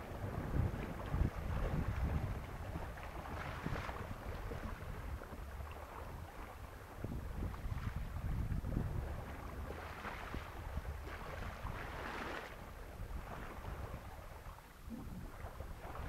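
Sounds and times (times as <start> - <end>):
water splashing along a hull: 0.0 - 16.0
wind buffeting microphone: 0.0 - 16.0.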